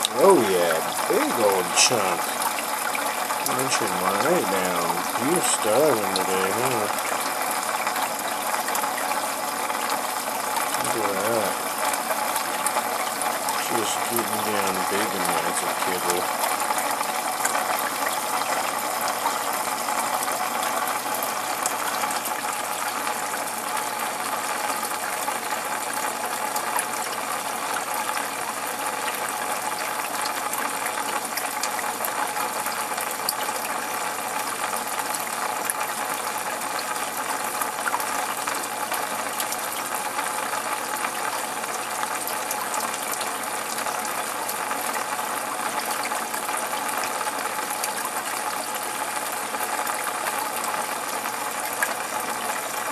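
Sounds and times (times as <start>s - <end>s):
faint steady hum: 0.0s - 25.6s
aquarium water pump running: 0.0s - 52.9s.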